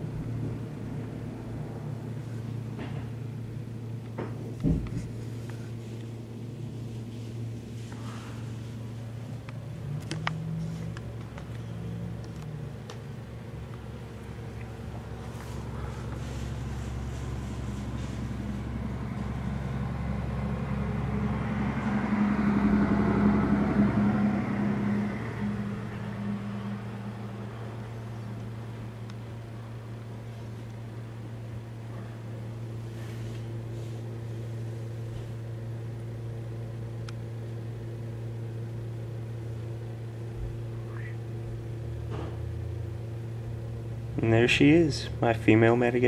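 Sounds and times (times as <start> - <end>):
low mechanical hum: 0.0 - 46.0
faint higher tones: 14.4 - 30.0
rushing noise: 15.0 - 28.7.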